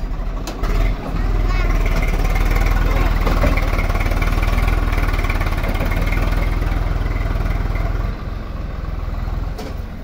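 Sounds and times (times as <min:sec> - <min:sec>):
tractor diesel engine running: 0:00.0 - 0:10.0.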